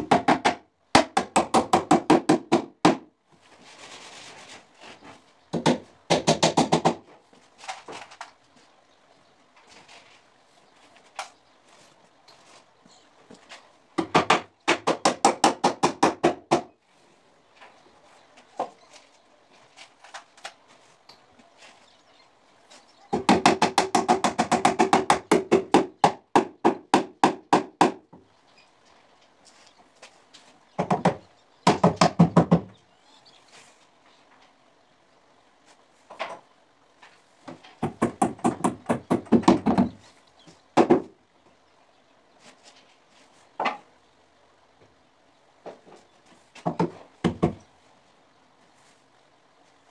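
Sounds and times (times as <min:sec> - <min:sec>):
rapid hammer blows on plywood: 0:00.0 - 0:03.1, 0:05.5 - 0:07.1, 0:14.0 - 0:16.7, 0:23.1 - 0:28.1, 0:37.8 - 0:40.0.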